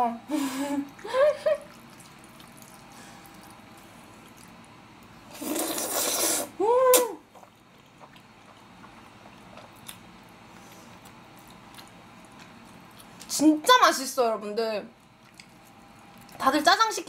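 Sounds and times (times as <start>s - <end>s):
loud slurp of noodles: 5.3s - 6.6s.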